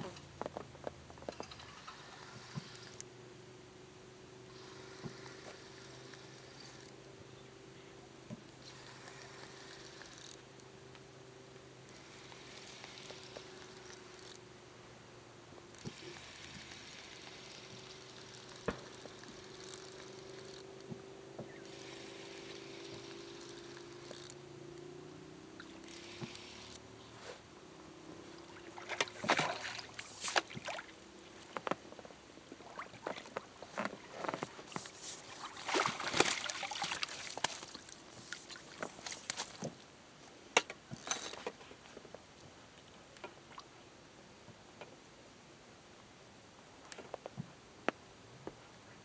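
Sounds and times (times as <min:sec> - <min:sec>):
distant boat engine droning: 0:01.6 - 0:31.6
rod and net clicks: 0:08.6 - 0:10.7, 0:11.9 - 0:14.5, 0:15.7 - 0:20.9, 0:21.6 - 0:24.8, 0:25.6 - 0:26.8, 0:28.4 - 0:31.8, 0:33.3 - 0:39.9, 0:40.6 - 0:41.6
water splashing and dripping: 0:28.3 - 0:31.0, 0:35.4 - 0:39.6.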